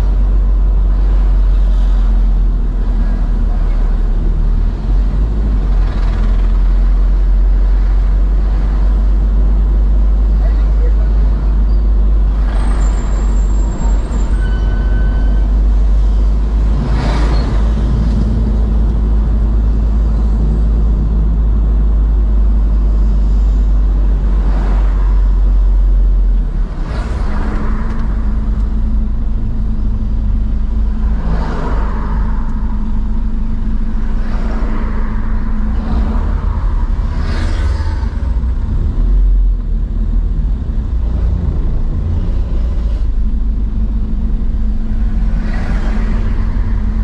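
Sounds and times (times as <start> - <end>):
car engine and road rumble: 0.0 - 47.0
vehicles whooshing past: 26.5 - 39.4, 40.9 - 47.0.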